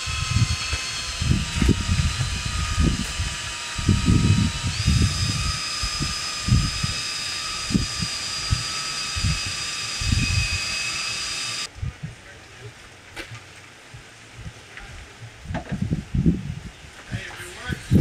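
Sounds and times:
electric drill whining: 0.0s - 11.7s
low rumbling: 0.0s - 13.1s.

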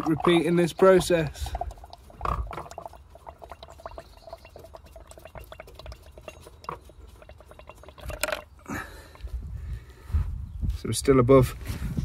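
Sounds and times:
pump clicking and squeaking: 0.0s - 9.3s.

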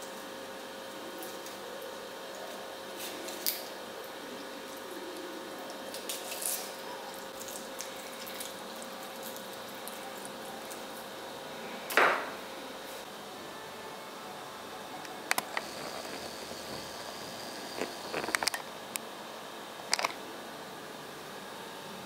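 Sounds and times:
steady hum: 6.9s - 22.0s.

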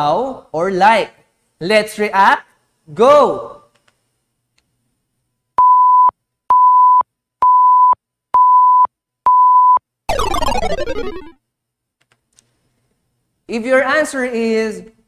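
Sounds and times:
high beeps: 5.6s - 11.4s
downward sweeping tone: 10.1s - 11.3s.

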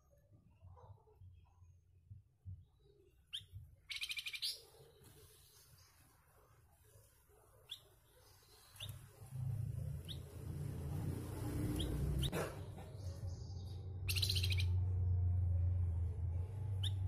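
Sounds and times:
bird chirps: 2.6s - 6.0s, 7.6s - 10.5s, 11.6s - 14.9s, 16.8s - 17.0s
low hum: 9.2s - 17.0s.

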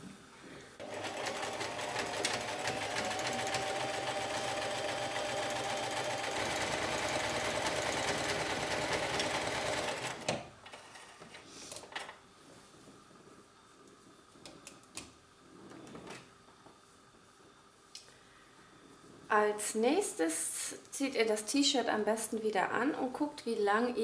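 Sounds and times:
electric sewing machine stitching: 0.8s - 10.5s.

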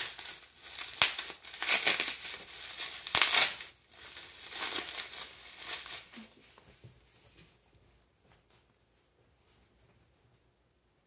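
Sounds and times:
bubble wrap snaps: 0.0s - 6.4s
bubble wrap crinkling: 0.0s - 6.9s.

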